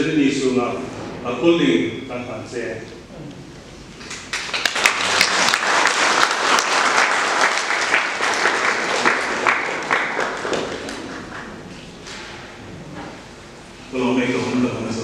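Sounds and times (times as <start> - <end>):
audience applauding: 4.0 - 11.8.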